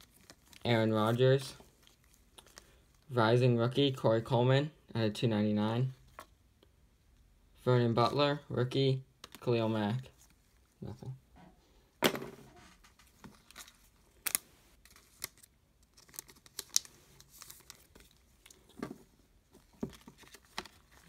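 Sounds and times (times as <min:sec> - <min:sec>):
cards rustling: 0:00.0 - 0:03.1, 0:12.5 - 0:21.0.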